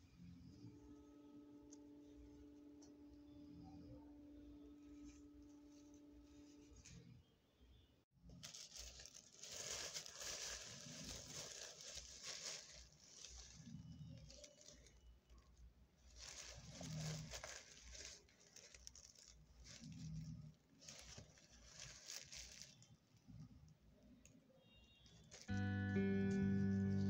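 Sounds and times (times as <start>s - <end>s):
plastic bag crinkling: 8.2s - 23.6s, 25.0s - 25.6s.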